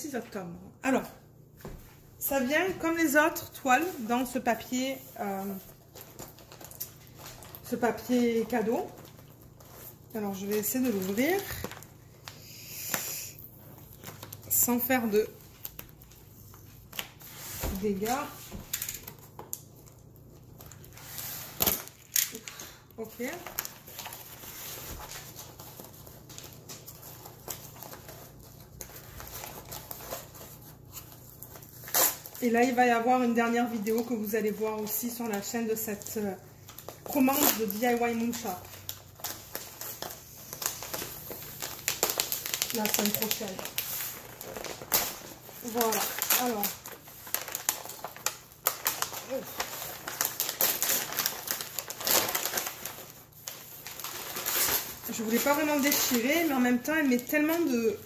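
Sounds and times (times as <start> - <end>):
tissue paper rustling: 1.6 - 58.0
wrapping paper tearing: 3.8 - 32.9, 33.9 - 58.0
fingers tapping and scratching paper: 37.0 - 53.1.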